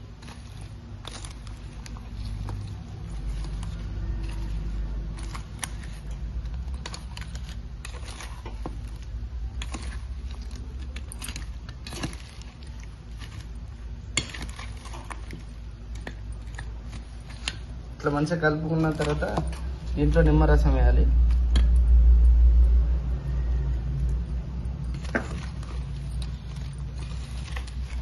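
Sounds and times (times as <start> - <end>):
low hum: 0.0 - 28.0
spoon scraping steel bowl: 0.1 - 17.8.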